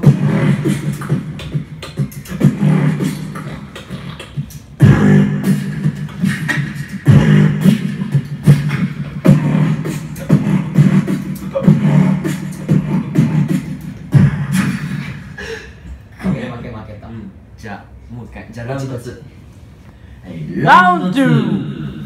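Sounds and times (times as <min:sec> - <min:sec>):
beatboxing into microphone: 0:00.0 - 0:17.0.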